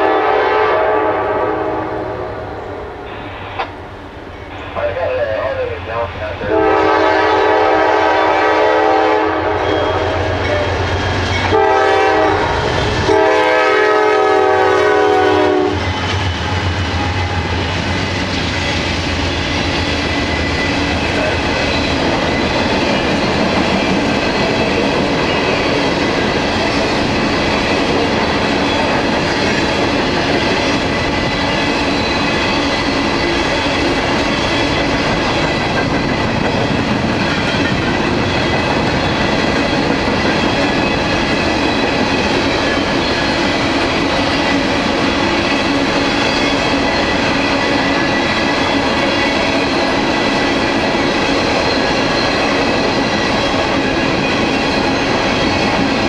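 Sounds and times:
locomotive air horn: 0:00.0 - 0:03.4, 0:06.5 - 0:10.5, 0:11.5 - 0:15.8
rail cars clickety-clack: 0:03.0 - 0:56.0
locomotives passing: 0:15.7 - 0:56.0.

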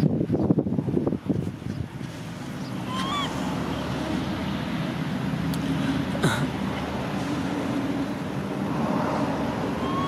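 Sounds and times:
low engine hum: 0:00.0 - 0:10.0.

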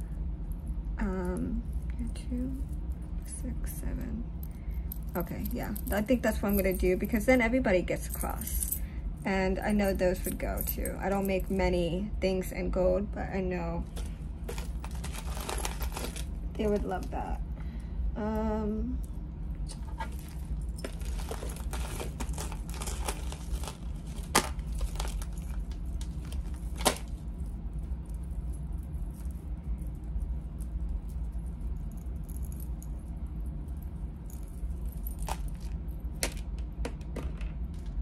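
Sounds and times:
low hum: 0:00.0 - 0:38.0
metal jewelry clinking: 0:04.0 - 0:11.7, 0:13.8 - 0:17.3, 0:19.9 - 0:36.3.

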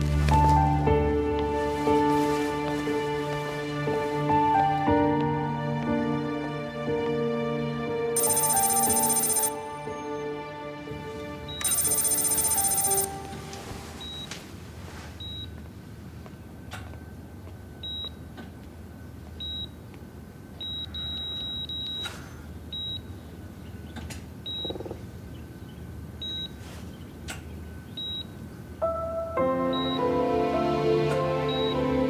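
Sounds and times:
soft music: 0:00.0 - 0:14.0, 0:28.8 - 0:32.0
patient monitor beeping: 0:08.2 - 0:09.9, 0:11.5 - 0:14.3.

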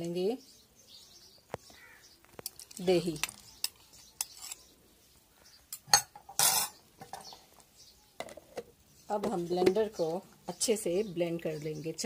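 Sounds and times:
spoon scraping: 0:02.4 - 0:04.7, 0:05.7 - 0:07.3.

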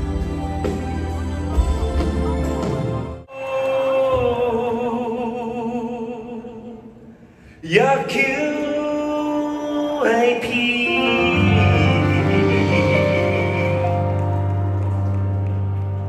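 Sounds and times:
bass accompaniment: 0:00.0 - 0:03.3, 0:10.9 - 0:16.0
man singing with vibrato: 0:03.3 - 0:14.7.

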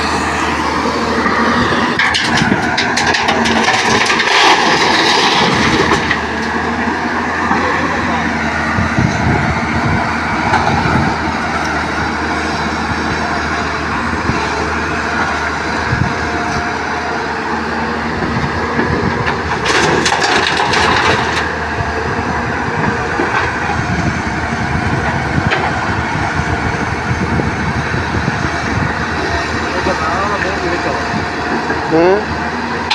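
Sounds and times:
excavator diesel engine running: 0:00.0 - 0:32.9
rocks dumped into truck bed: 0:02.0 - 0:06.5, 0:19.3 - 0:21.5.

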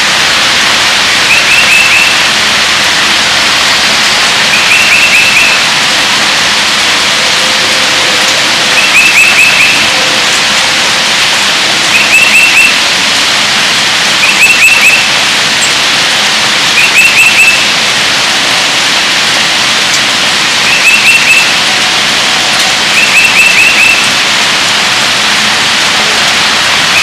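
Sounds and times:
heavy rain falling: 0:00.0 - 0:27.0.

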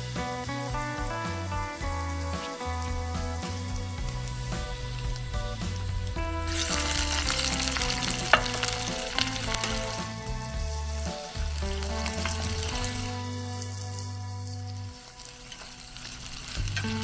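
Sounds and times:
background music with bass line: 0:00.0 - 0:17.0
food sizzling in oiled pan: 0:00.0 - 0:17.0
utensil clicking against pan: 0:06.6 - 0:09.8.

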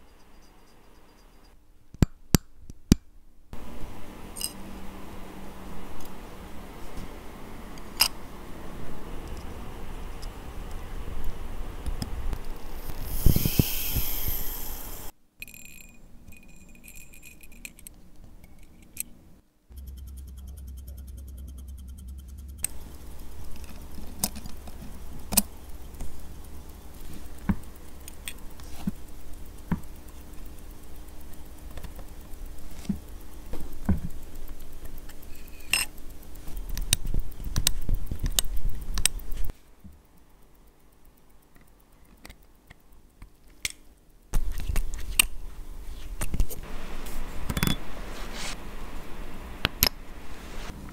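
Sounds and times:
tweezers clicking on metal parts: 0:19.8 - 0:39.4, 0:40.2 - 0:45.5
rustling scrape: 0:48.0 - 0:48.7, 0:50.2 - 0:50.8.

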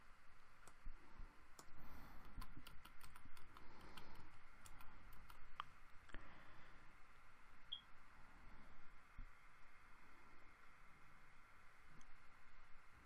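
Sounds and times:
typing on computer keyboard: 0:01.6 - 0:05.6.

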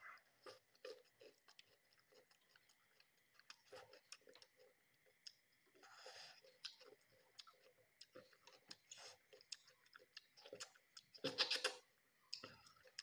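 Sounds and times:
person chewing and lip-smacking: 0:06.4 - 0:13.0.

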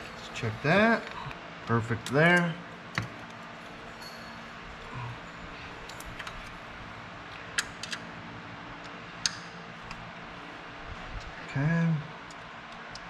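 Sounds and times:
steady low hum: 0:00.0 - 0:13.0
metallic clicks of tools on engine: 0:01.0 - 0:04.4, 0:07.3 - 0:08.1, 0:08.8 - 0:10.0.

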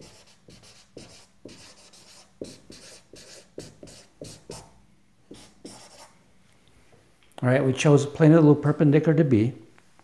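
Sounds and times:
marker writing on whiteboard: 0:00.0 - 0:06.1.

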